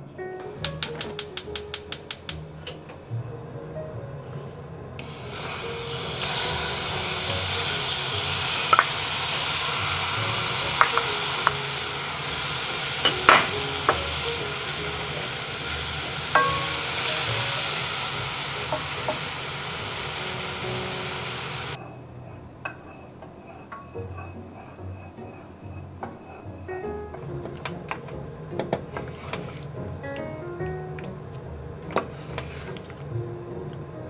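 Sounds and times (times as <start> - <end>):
fruit sizzling in a saucepan: 5.0 - 21.8
spatula knocking on pan: 16.3 - 17.1.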